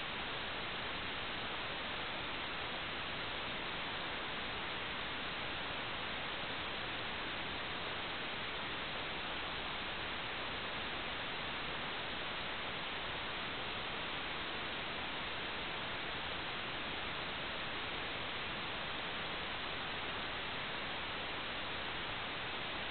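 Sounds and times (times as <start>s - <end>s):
static hiss: 0.0s - 22.9s.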